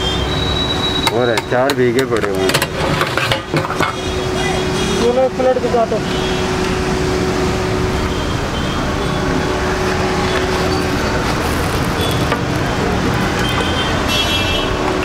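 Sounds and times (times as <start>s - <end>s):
roadside traffic: 0.0s - 15.0s.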